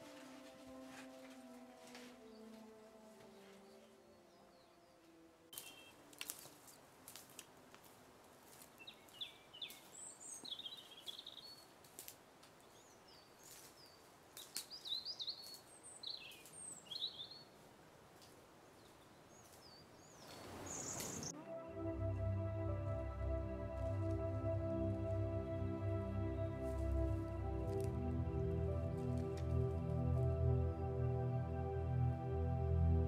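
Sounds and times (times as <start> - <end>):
faint outdoor background noise: 0.0 - 33.0
songbirds chirping and trilling: 0.1 - 7.2, 8.5 - 33.0.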